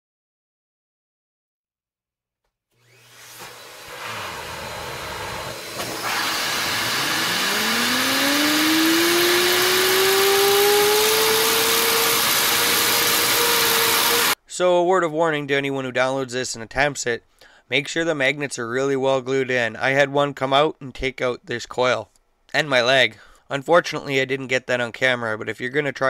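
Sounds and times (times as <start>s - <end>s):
rotor whine rising in pitch: 2.8s - 14.4s
air hissing through turbine: 2.9s - 14.4s.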